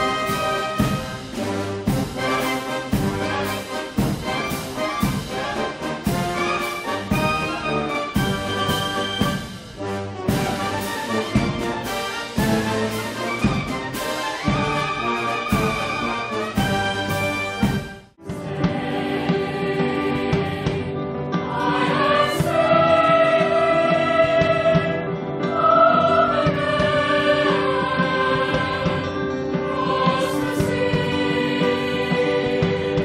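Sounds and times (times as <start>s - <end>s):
military band music: 0.0s - 20.6s
choir singing held chords: 0.0s - 33.0s.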